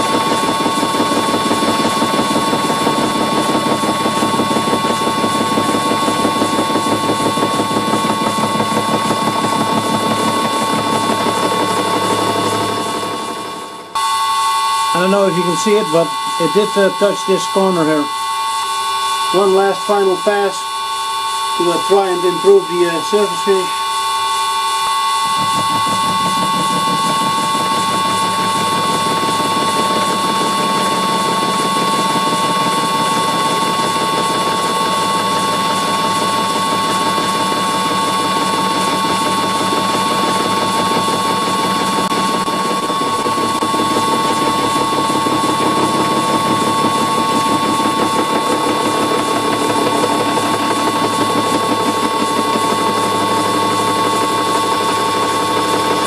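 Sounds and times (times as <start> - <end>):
milling cutter whine: 0.0 - 56.0
rough metal cutting noise: 21.5 - 23.8, 24.5 - 31.3.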